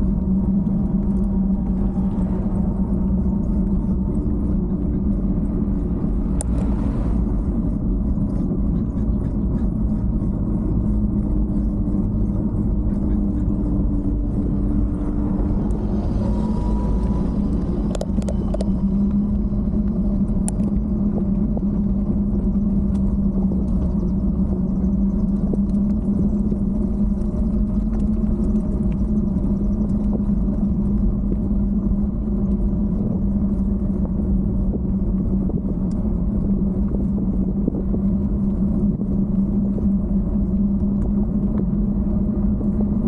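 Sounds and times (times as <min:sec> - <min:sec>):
bike riding rumble: 0:00.0 - 0:43.0.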